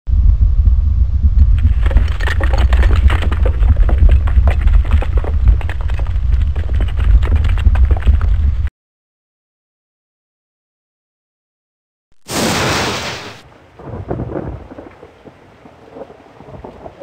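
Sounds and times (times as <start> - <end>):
deep steady rumble: 0.1 - 8.7
dense crackling and clicking: 1.4 - 8.7.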